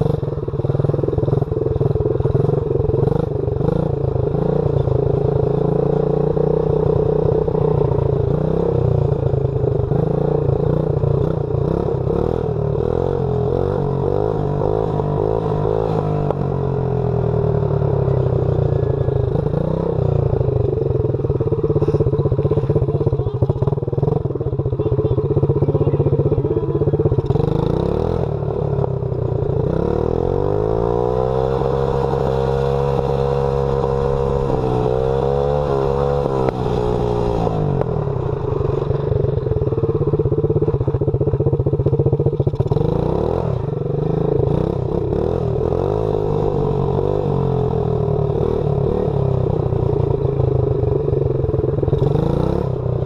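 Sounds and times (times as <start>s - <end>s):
dirt bike engine revving: 25.6s - 28.9s, 29.6s - 37.9s.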